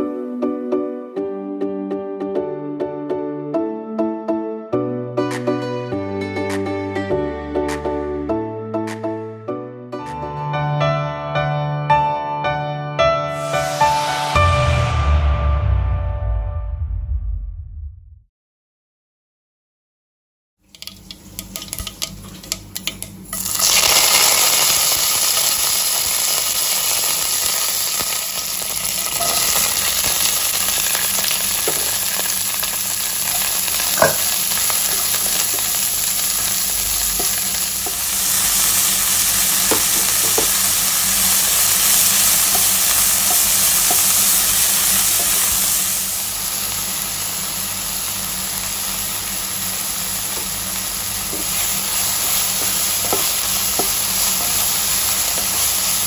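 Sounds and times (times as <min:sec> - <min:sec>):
seeds crackling in hot oil: 0:20.6 - 0:56.0
wooden spatula ticking on pan: 0:20.7 - 0:23.1
onions sizzling in oil: 0:20.7 - 0:56.0.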